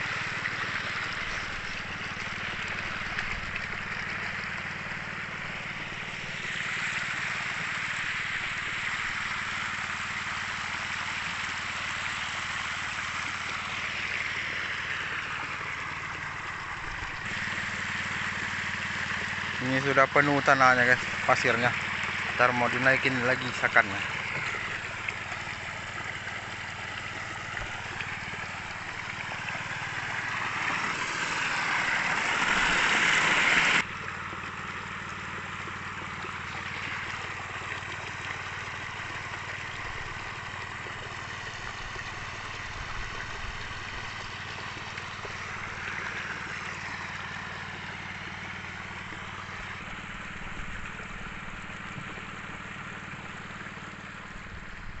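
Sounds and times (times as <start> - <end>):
pump engine humming: 0.0 - 55.0
slurry rushing down a sluice: 0.0 - 55.0.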